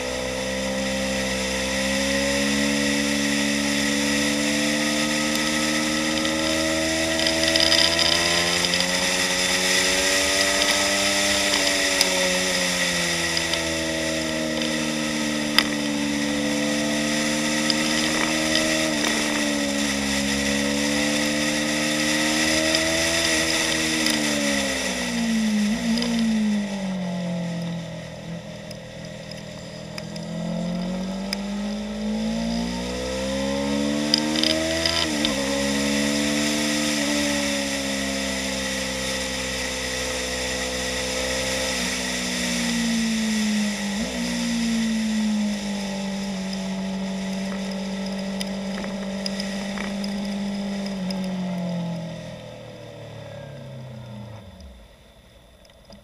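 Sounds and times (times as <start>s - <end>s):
motorcycle engine running hard: 0.0s - 56.0s.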